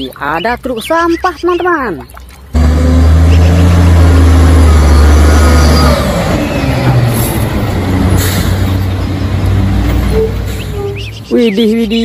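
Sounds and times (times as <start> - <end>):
garbage truck engine driving past: 2.6 - 11.3.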